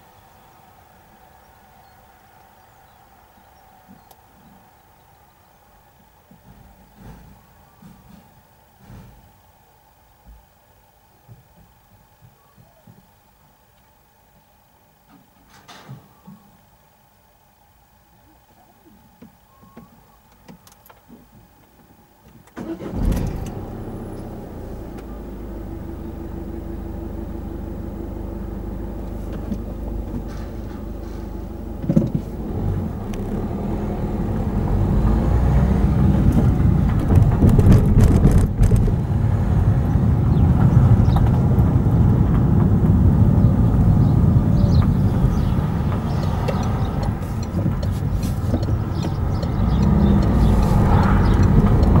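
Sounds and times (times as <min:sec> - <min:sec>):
car driving along road: 0:22.6 - 0:52.0
car engine idling: 0:22.6 - 0:52.0
tyre noise: 0:28.2 - 0:52.0.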